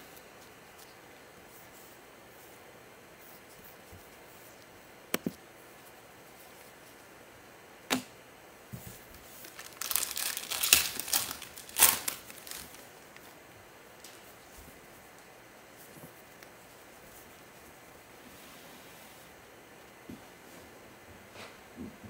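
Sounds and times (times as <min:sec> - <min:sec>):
foil wrapper crinkling: 0:09.2 - 0:13.4.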